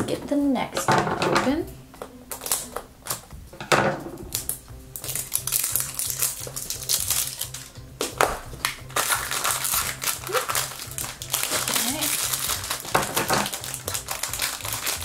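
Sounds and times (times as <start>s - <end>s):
background music with beat: 1.5s - 15.0s
foil wrapper crinkling: 2.3s - 3.2s, 4.3s - 7.7s, 8.6s - 15.0s.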